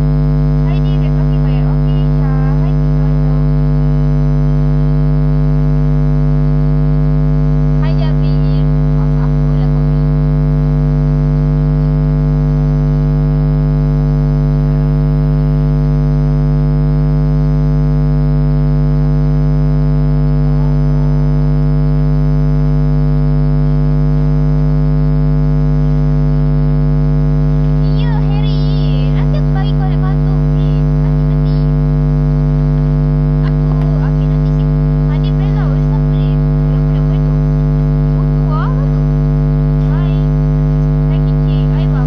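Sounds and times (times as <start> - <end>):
electrical hum with buzzing: 0.0 - 42.0
faint voice: 0.6 - 3.9, 7.8 - 10.3, 27.6 - 31.8, 33.4 - 39.1, 39.7 - 42.0.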